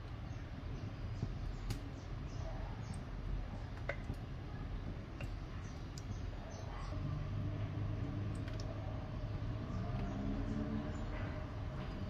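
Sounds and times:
wood fire crackling and popping: 0:01.2 - 0:02.0.

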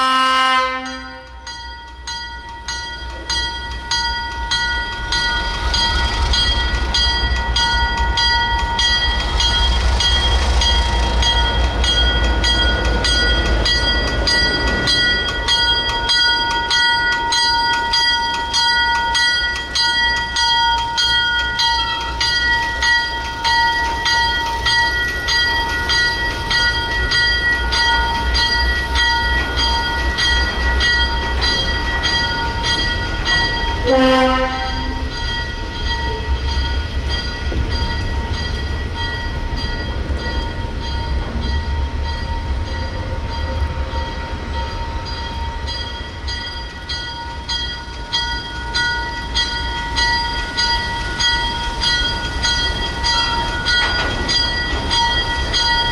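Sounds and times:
train horn blast: 0:00.0 - 0:01.4, 0:33.8 - 0:35.1
diesel locomotive engine rumble: 0:00.0 - 0:55.9
locomotive bell ringing: 0:00.0 - 0:55.9.

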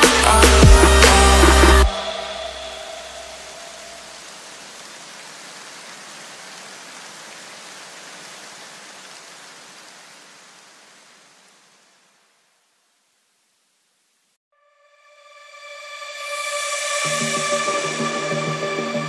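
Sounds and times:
steady white noise hiss: 0:02.8 - 0:14.4.

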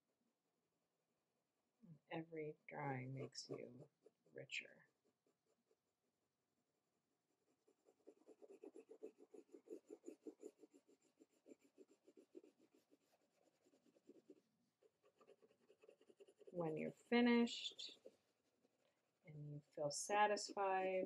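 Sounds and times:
pencil shading on paper: 0:02.8 - 0:06.0, 0:07.3 - 0:19.2.

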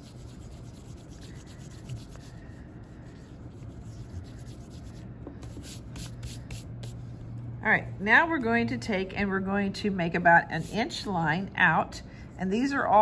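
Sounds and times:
eraser rubbing on paper: 0:00.0 - 0:07.0.

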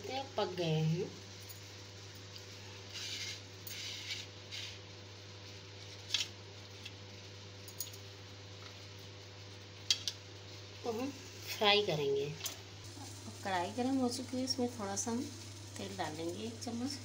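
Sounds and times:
knife cutting and scraping plate: 0:02.9 - 0:04.8.

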